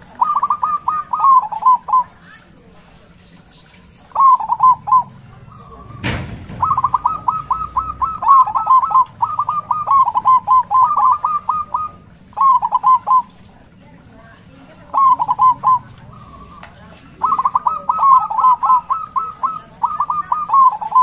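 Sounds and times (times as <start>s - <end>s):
dove cooing: 0.0s - 21.0s
brief knock: 6.0s - 6.8s.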